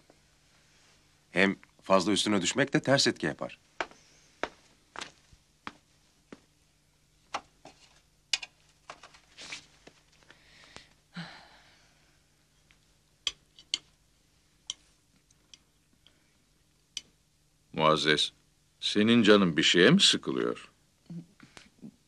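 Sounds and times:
faint steady hum: 0.0 - 22.0
small clicks and taps: 8.3 - 9.1.

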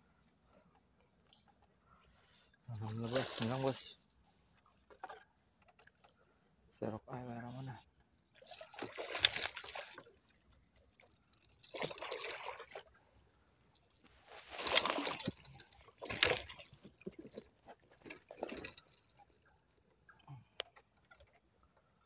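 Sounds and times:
fish thrashing: 8.2 - 19.6.

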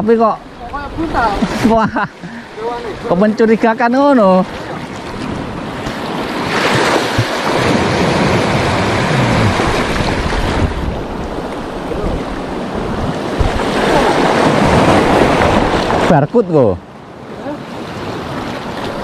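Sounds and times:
waves washing on rocky shore: 2.4 - 19.0
wind buffeting microphone: 4.5 - 16.1.

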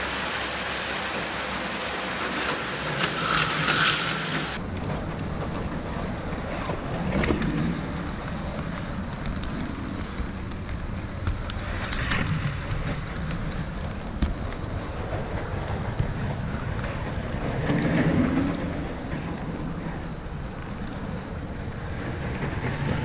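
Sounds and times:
model train rumbling on track: 0.0 - 23.0.

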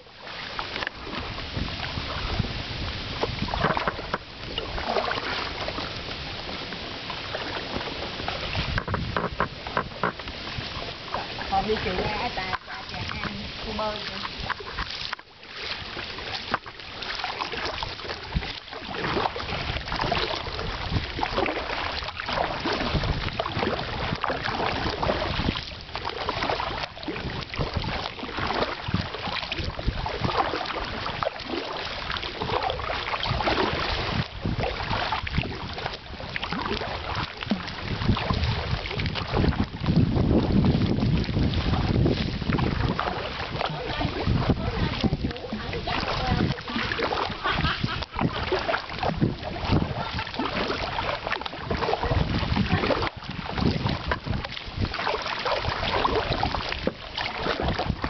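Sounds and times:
kayak paddles splashing: 0.0 - 58.0
wind rumbling on microphone: 0.0 - 58.0.

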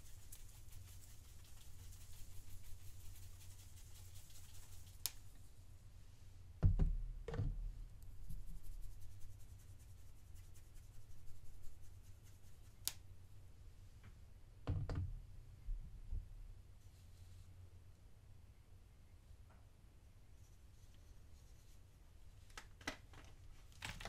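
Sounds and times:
glitter sprinkling hiss: 0.0 - 5.4.

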